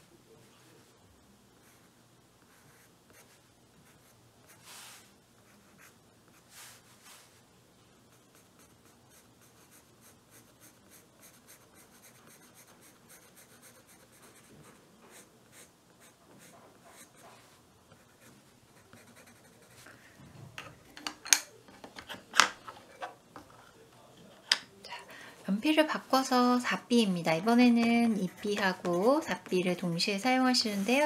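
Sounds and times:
pencil scratching on paper: 0:08.1 - 0:19.9, 0:27.4 - 0:31.0.

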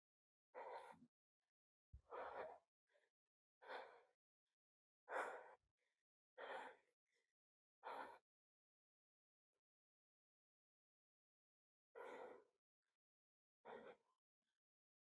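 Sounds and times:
person breathing hard: 0:00.6 - 0:01.0, 0:02.0 - 0:04.2, 0:05.1 - 0:05.6, 0:06.4 - 0:06.9, 0:07.8 - 0:08.2, 0:12.0 - 0:12.5, 0:13.6 - 0:14.0.

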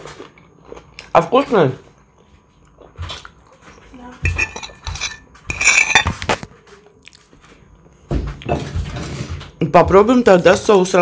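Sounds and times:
fork scraping a plate: 0:04.3 - 0:06.5.

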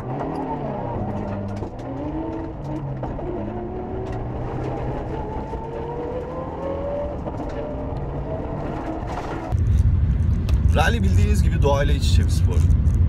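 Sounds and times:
car engine revving through gears: 0:00.0 - 0:09.6.

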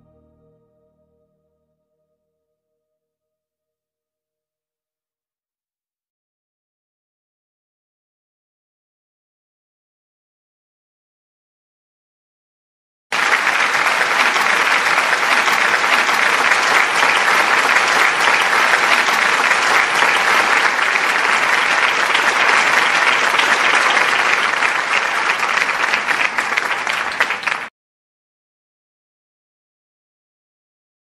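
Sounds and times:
crowd applauding: 0:13.1 - 0:27.7.

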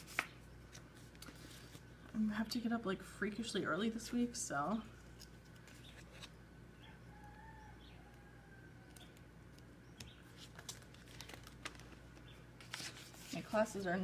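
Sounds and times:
paper rustling and light taps: 0:00.0 - 0:01.8.

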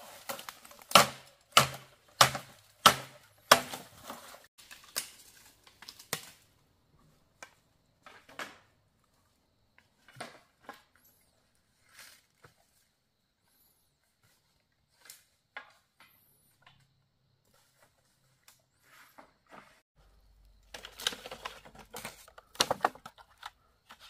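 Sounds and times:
wood chopping strikes: 0:00.2 - 0:04.2.

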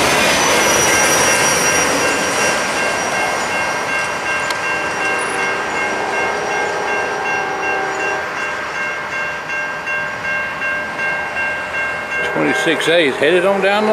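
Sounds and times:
crossing signal bell ringing: 0:00.0 - 0:13.9
distant locomotive horn: 0:04.5 - 0:08.5, 0:12.2 - 0:13.9.

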